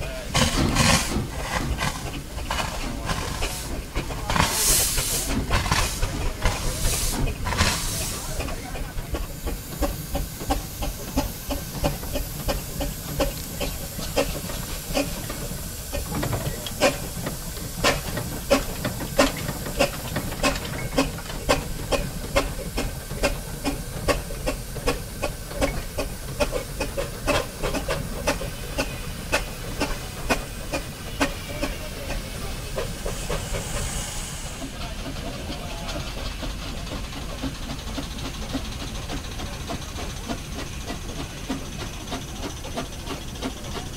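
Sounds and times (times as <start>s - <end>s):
loud blow of steam: 0.0s - 41.8s
continuous steam hiss: 0.0s - 43.9s
steam engine chuffing exhaust: 0.0s - 43.9s.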